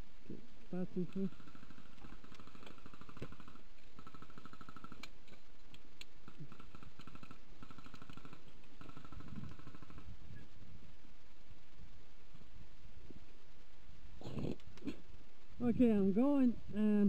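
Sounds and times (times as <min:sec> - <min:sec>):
airsoft guns firing bursts: 0:01.2 - 0:05.4, 0:06.2 - 0:10.1.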